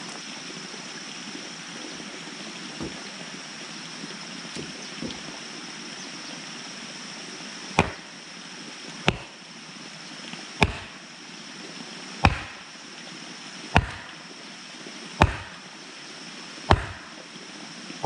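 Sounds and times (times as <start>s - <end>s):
wooden mallet striking wooden post: 2.8s - 3.0s, 7.8s - 8.1s, 9.1s - 9.4s, 10.6s - 11.0s, 12.2s - 12.6s, 13.8s - 14.2s, 15.2s - 15.6s, 16.7s - 17.1s.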